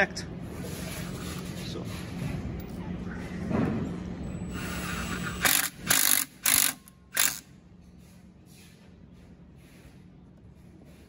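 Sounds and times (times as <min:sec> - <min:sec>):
impact driver hammering: 0:05.4 - 0:07.4.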